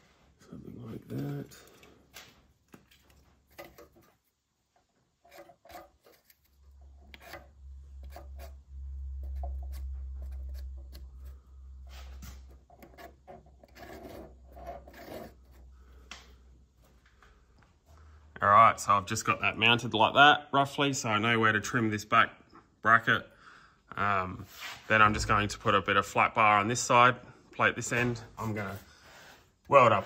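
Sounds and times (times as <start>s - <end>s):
low steady hum: 4.7s - 18.7s, 24.9s - 29.1s.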